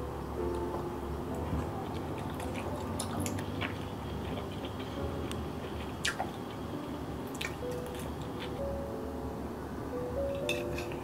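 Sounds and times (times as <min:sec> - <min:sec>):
food squishing: 0:01.4 - 0:06.7.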